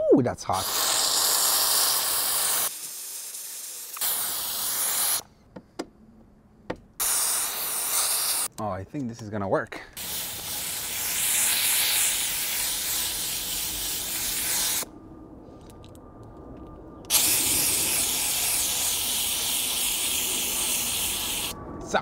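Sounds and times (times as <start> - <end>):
steam cleaner hissing: 0.5 - 5.2, 7.0 - 8.5, 10.0 - 14.8, 17.1 - 21.6.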